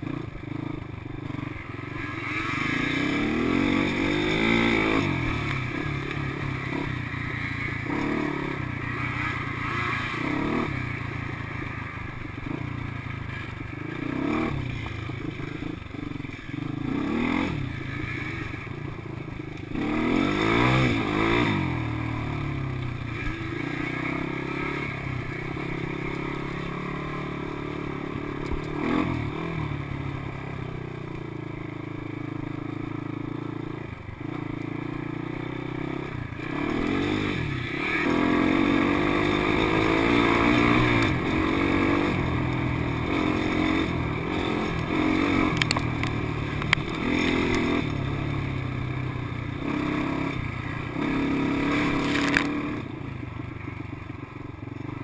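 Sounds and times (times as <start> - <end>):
atv engine revving: 0.0 - 55.0.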